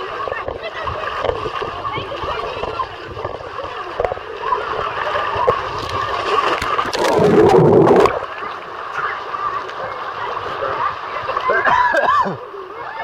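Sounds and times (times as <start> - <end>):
water rushing down a slide: 0.0 - 13.0
splash into pool: 3.9 - 12.3.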